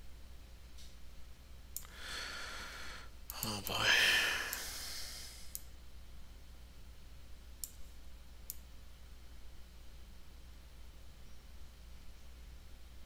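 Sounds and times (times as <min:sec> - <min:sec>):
faint low hum: 0:00.0 - 0:13.0
computer mouse clicks: 0:07.6 - 0:08.7.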